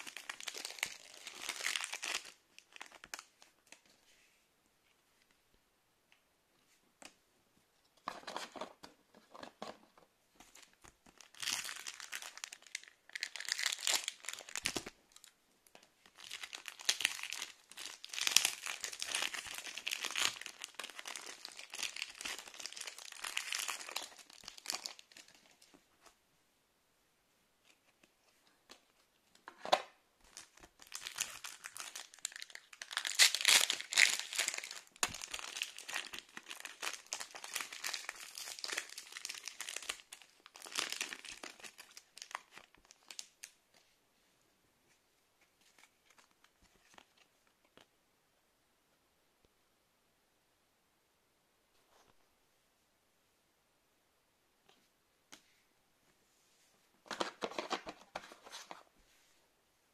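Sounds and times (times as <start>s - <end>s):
foil wrappers crinkling: 30.4s - 43.3s.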